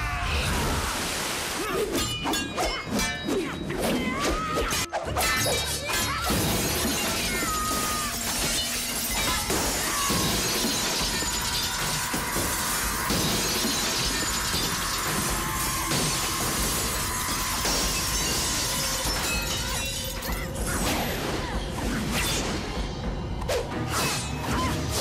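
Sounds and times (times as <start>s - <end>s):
film music score: 1.7s - 25.0s
swords clashing: 1.9s - 21.0s
crashing and shattering: 5.9s - 20.7s.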